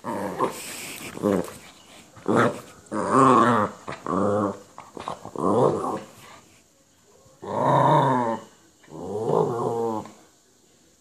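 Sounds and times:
small dog growling grumble: 0:00.0 - 0:01.5, 0:02.2 - 0:06.1, 0:07.4 - 0:10.2.

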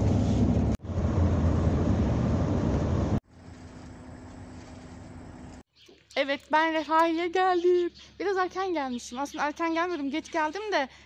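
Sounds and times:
bus engine and road rumble: 0:00.0 - 0:05.6.

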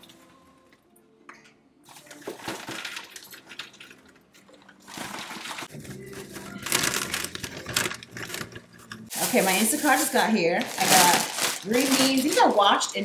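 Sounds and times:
popcorn pouring into glass: 0:01.9 - 0:04.1
plastic bag crinkling: 0:04.9 - 0:13.0.

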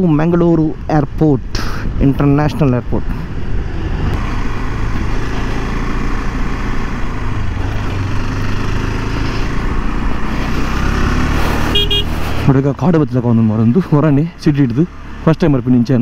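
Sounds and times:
motorcycle engine running: 0:04.2 - 0:12.4.

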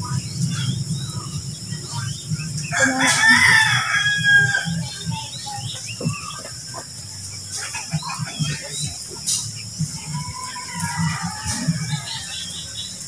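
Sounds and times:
rooster crowing: 0:02.7 - 0:04.9.

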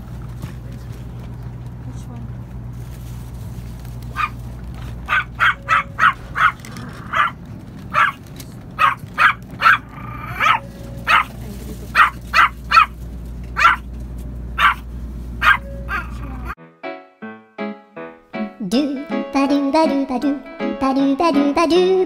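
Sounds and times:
moving train rumble: 0:00.0 - 0:16.6
small dog yapping: 0:04.1 - 0:04.4, 0:05.0 - 0:08.2, 0:08.8 - 0:13.9, 0:14.6 - 0:14.8, 0:15.4 - 0:16.6.

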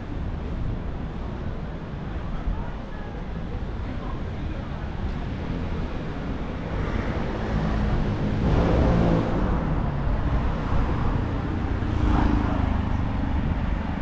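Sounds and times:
cars passing: 0:05.2 - 0:14.0.

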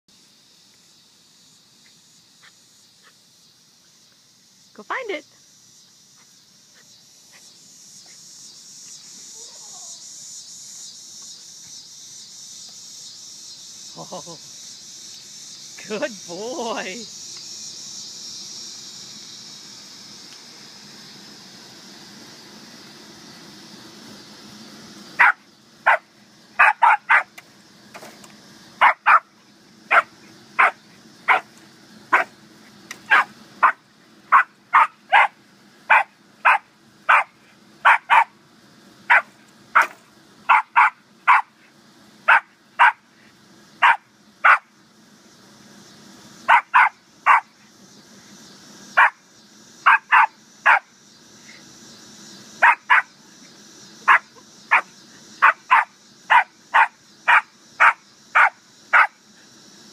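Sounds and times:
dog barking: 0:25.2 - 0:26.0, 0:26.6 - 0:27.3, 0:28.8 - 0:29.3, 0:29.9 - 0:31.5, 0:33.1 - 0:38.3, 0:39.1 - 0:39.9, 0:40.5 - 0:41.5, 0:42.3 - 0:43.0, 0:43.8 - 0:44.7, 0:46.5 - 0:47.5, 0:49.0 - 0:49.2, 0:49.9 - 0:50.8, 0:52.6 - 0:53.1, 0:54.1 - 0:59.2.

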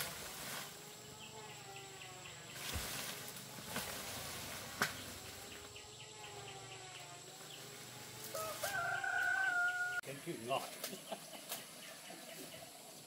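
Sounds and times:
rooster crowing: 0:08.3 - 0:10.0.

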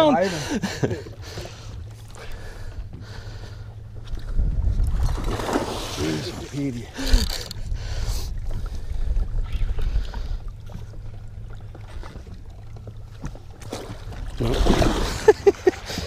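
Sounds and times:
water against boat hull: 0:00.6 - 0:16.0
wind on microphone: 0:04.0 - 0:06.0, 0:07.0 - 0:10.5
net splashing into water: 0:04.9 - 0:06.5.

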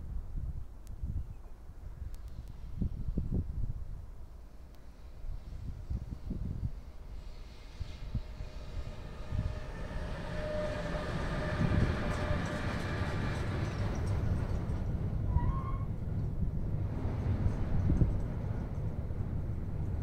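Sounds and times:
electric locomotive whine: 0:04.1 - 0:20.0
wagons rumbling over rails: 0:07.2 - 0:20.0
rising squeak: 0:08.4 - 0:14.6, 0:15.3 - 0:16.0.

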